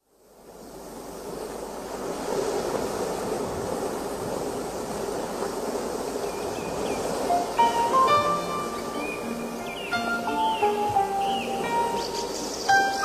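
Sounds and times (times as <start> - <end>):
ocean waves breaking: 0.7 - 13.0.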